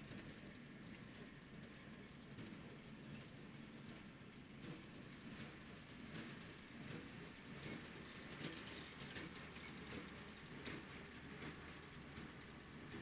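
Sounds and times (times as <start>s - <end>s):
baler crackling ticks: 8.1s - 12.8s.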